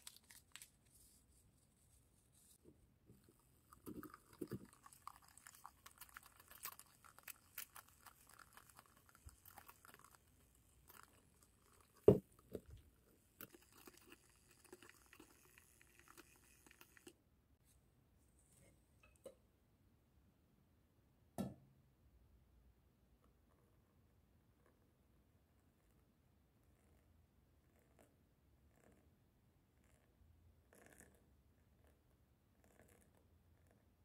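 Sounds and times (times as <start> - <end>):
milk frother whisking cream: 13.4 - 17.1.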